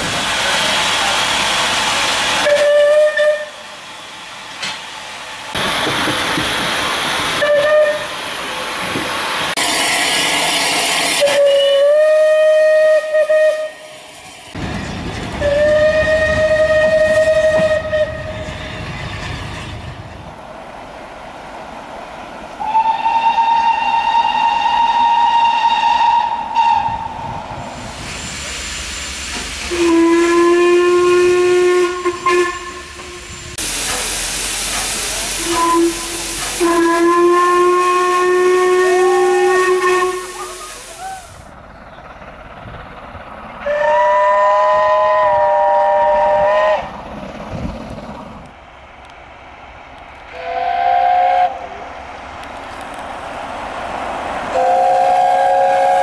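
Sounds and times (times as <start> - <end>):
steam locomotive whistles: 0.0 - 3.9, 7.2 - 8.3, 9.5 - 14.2, 15.4 - 18.6, 22.6 - 41.5, 43.6 - 46.9, 50.3 - 51.9, 54.5 - 56.0
escaping steam rushing: 0.0 - 48.6, 49.8 - 56.0.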